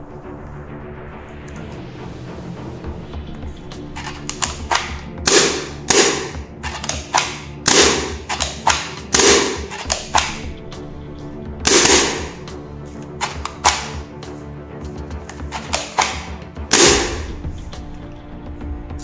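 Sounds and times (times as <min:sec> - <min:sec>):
background music: 0:00.0 - 0:19.0
sharp plastic clicks: 0:03.9 - 0:10.5, 0:13.1 - 0:14.1, 0:15.2 - 0:17.3
toy shotgun being racked: 0:04.0 - 0:05.0, 0:06.6 - 0:10.4, 0:13.2 - 0:14.0, 0:15.4 - 0:17.2.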